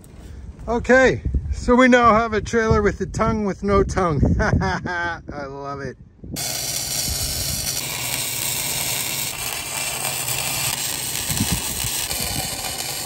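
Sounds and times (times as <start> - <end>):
arc welding crackling sizzle: 6.4 - 13.0.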